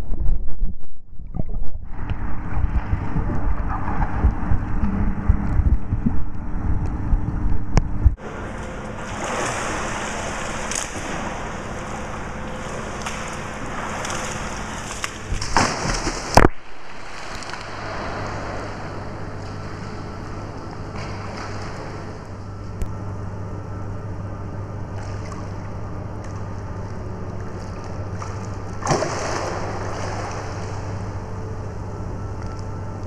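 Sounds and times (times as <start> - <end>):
muffled underwater rumbling: 0.0 - 33.0
pool water washing: 8.2 - 22.6, 24.8 - 31.5.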